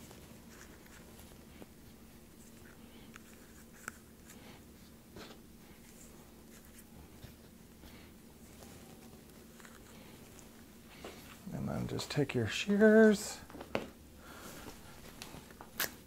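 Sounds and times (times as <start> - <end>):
low room hum: 0.0 - 16.0.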